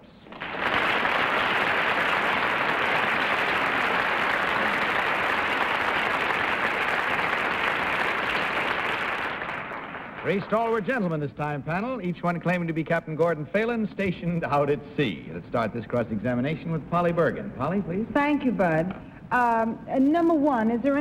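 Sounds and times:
audience applauding: 0:00.0 - 0:11.1.

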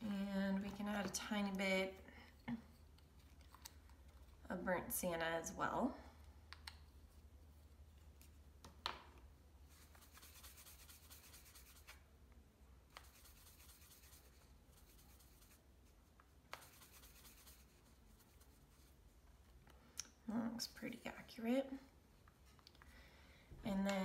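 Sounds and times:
paintbrush swishing on paper: 0:09.6 - 0:12.0, 0:12.9 - 0:19.1.

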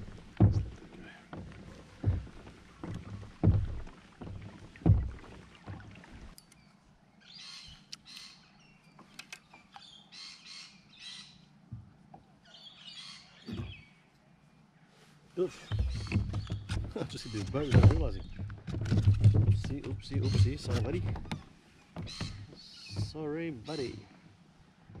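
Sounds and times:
dull low thumps: 0:00.0 - 0:06.1
birds chirping: 0:05.5 - 0:11.6, 0:12.2 - 0:18.6, 0:19.4 - 0:25.0
small clicks: 0:09.0 - 0:09.9.

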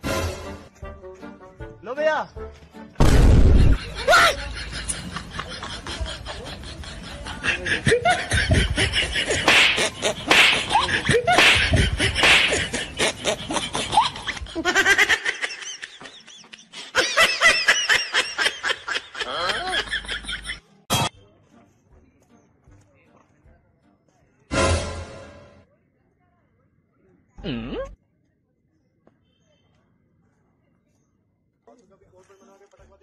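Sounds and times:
loud thump: 0:03.0 - 0:03.8
bursts of laughter: 0:03.4 - 0:20.6.

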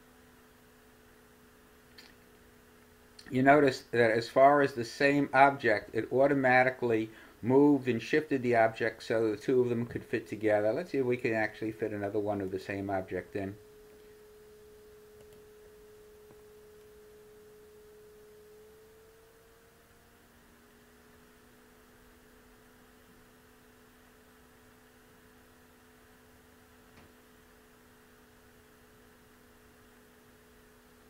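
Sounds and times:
faint hum-like tone: 0:00.0 - 0:31.0
faint click: 0:01.9 - 0:02.2, 0:15.2 - 0:15.5.

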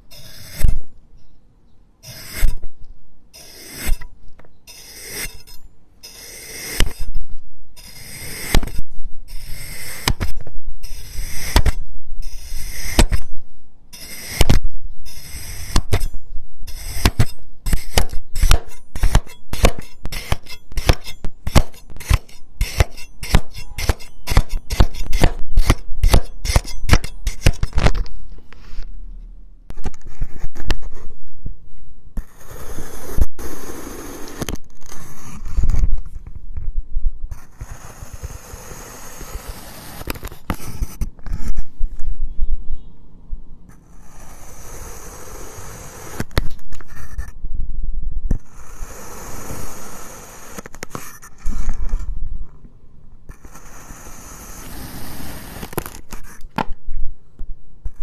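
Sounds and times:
knife scraping plastic board: 0:03.4 - 0:07.2, 0:07.8 - 0:13.3, 0:14.0 - 0:28.9, 0:37.3 - 0:41.7, 0:50.5 - 0:52.1
knife slicing through sand: 0:16.7 - 0:27.7.

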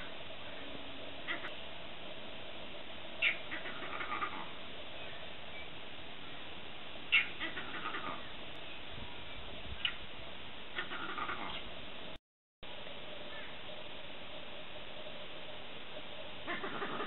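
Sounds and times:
steady hiss: 0:00.0 - 0:17.0
animal calls: 0:01.2 - 0:01.6, 0:03.2 - 0:04.6, 0:07.1 - 0:08.3, 0:10.7 - 0:11.7, 0:16.4 - 0:17.0.

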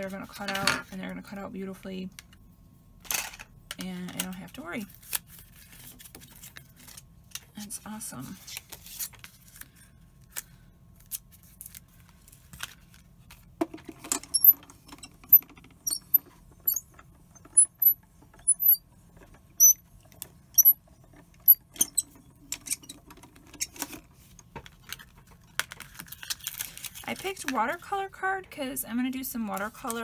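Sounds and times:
short high squeaks: 0:17.6 - 0:18.8, 0:20.6 - 0:20.8.

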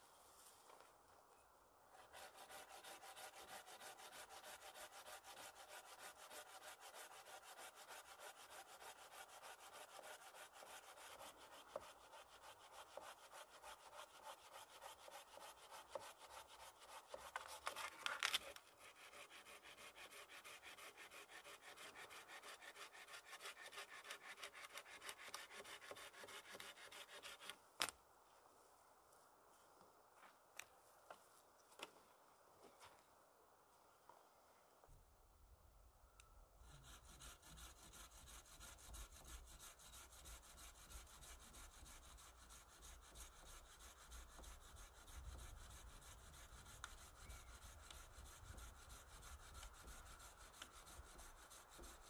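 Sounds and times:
hand saw cutting wood: 0:02.0 - 0:18.0, 0:18.8 - 0:27.5, 0:36.8 - 0:52.0.

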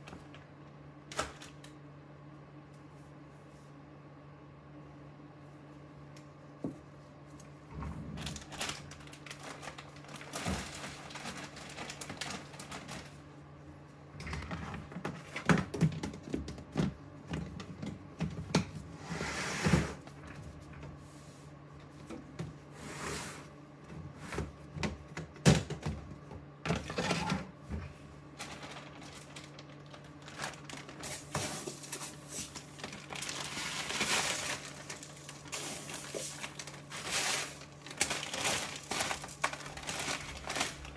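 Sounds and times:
low steady hum: 0:00.0 - 0:40.9
plastic bags crinkling: 0:01.1 - 0:01.7, 0:08.1 - 0:13.4, 0:28.2 - 0:40.9
plastic tubs knocking and clicking: 0:14.2 - 0:18.8.

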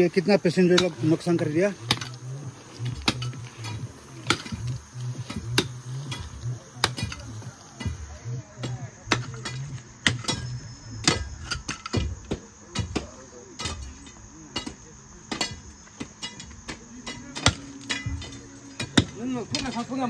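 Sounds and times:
pickaxe striking stony ground: 0:01.8 - 0:02.2, 0:02.9 - 0:04.7, 0:05.3 - 0:07.9, 0:09.1 - 0:13.9, 0:14.6 - 0:19.8.

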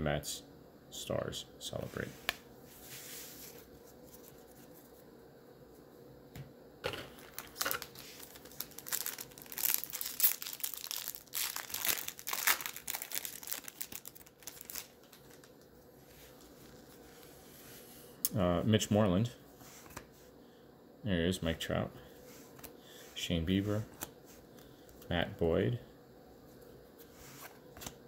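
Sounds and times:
wrapper tearing and crinkling: 0:07.1 - 0:15.7.

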